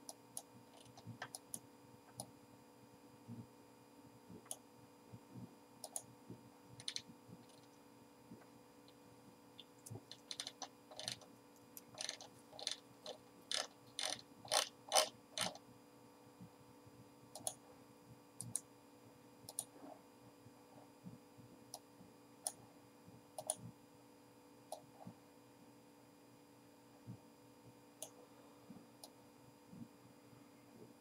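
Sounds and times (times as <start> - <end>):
mouse scroll-wheel ticks: 0.0 - 1.6, 5.8 - 6.0, 6.8 - 7.7, 9.6 - 15.6, 17.4 - 17.6, 23.4 - 23.6
faint steady hum: 0.0 - 31.0.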